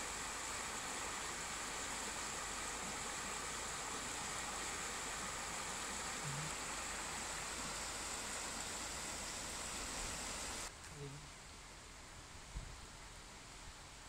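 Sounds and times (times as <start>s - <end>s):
water rushing over stones: 0.0s - 10.7s.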